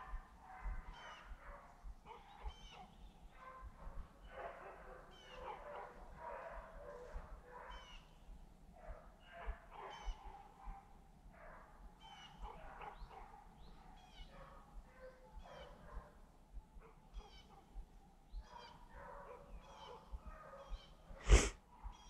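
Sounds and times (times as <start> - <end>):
pack of dogs baying: 0.0 - 8.0, 8.8 - 13.5, 18.4 - 21.0.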